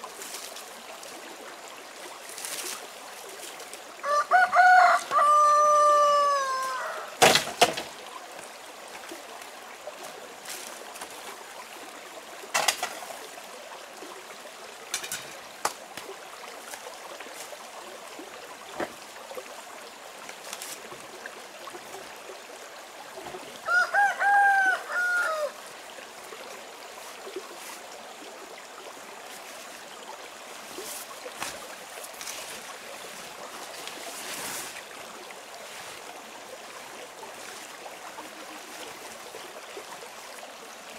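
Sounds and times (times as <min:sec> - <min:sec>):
running water hiss: 0:00.0 - 0:40.9
rooster crowing: 0:04.0 - 0:07.2, 0:23.6 - 0:25.6.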